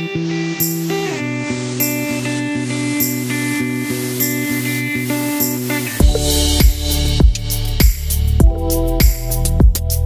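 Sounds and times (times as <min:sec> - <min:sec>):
instrumental music sustained notes: 0:00.0 - 0:10.0
deep kick drum beat: 0:06.0 - 0:10.0.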